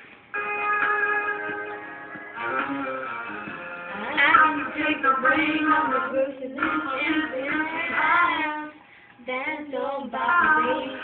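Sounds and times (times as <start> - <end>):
girls singing a ballad: 3.9 - 11.0.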